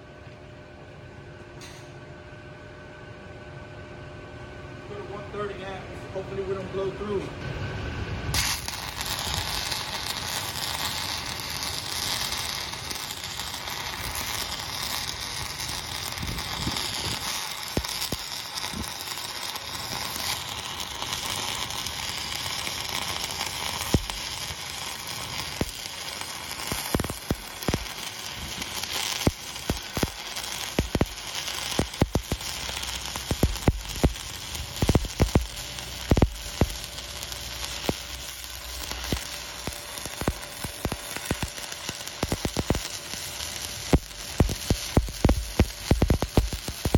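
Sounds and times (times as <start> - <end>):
sharp welding pops: 1.6 - 2.0, 8.3 - 46.9
welding arc crackling hiss: 6.4 - 46.9.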